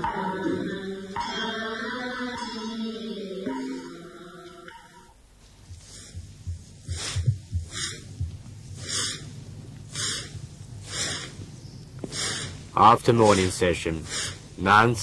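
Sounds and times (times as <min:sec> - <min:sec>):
broom sweeping: 0:05.4 - 0:09.1, 0:13.1 - 0:13.7
soft low thumps: 0:05.4 - 0:12.2.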